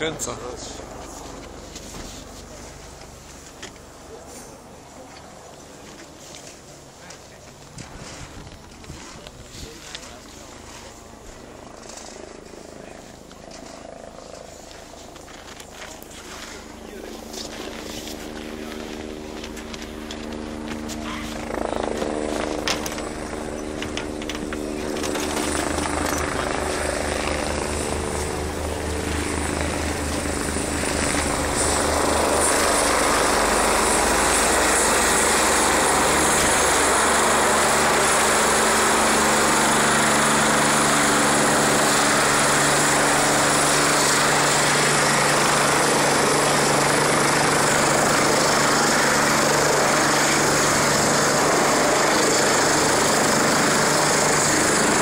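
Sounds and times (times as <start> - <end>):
helicopter rotor and engine: 0.0 - 55.0
rotor downwash rushing: 25.8 - 55.0.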